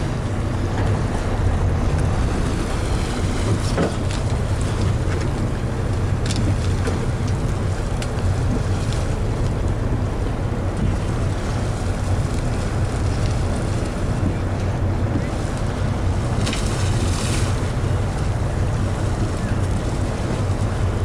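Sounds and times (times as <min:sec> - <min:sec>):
boat engine humming: 0:00.0 - 0:21.0
sea washing past hull: 0:00.0 - 0:21.0
wind buffeting microphone: 0:00.0 - 0:21.0.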